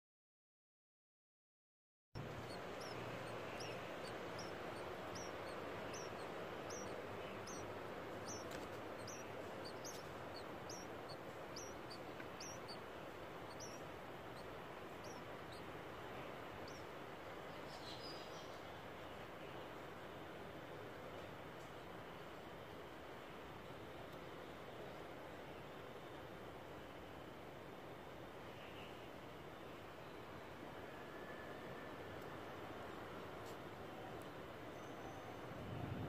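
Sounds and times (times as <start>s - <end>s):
nestlings cheeping: 2.2s - 17.9s
steady background hiss: 2.2s - 36.0s.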